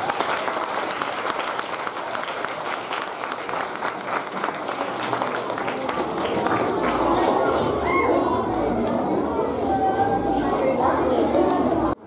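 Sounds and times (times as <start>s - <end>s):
audience applauding: 0.0s - 7.5s
voices: 4.0s - 12.0s.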